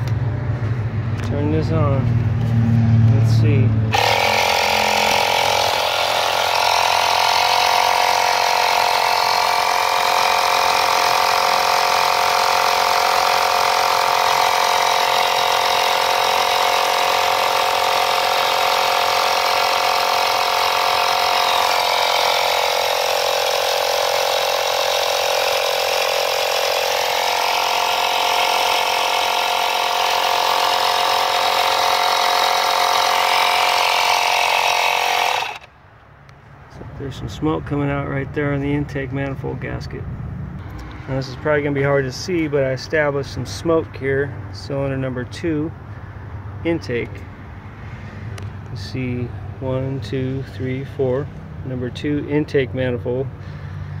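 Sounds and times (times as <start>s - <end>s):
small compressor running: 3.1s - 35.7s.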